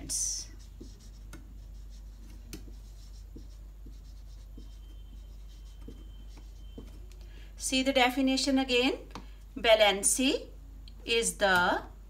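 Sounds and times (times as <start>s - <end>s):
steady low hum: 0.0s - 12.0s
marker squeaking on whiteboard: 0.5s - 7.1s.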